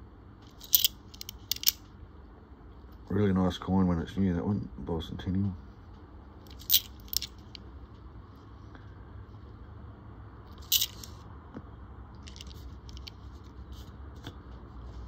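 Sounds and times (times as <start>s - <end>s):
low steady hum: 0.0s - 15.0s
coins clicking and scraping: 0.5s - 1.8s, 6.5s - 7.6s, 10.6s - 11.2s, 12.2s - 13.2s.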